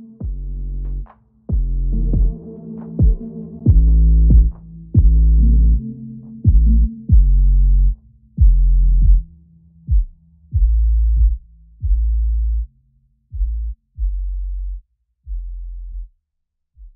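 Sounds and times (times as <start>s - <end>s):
electronic music with deep bass: 0.0s - 12.7s.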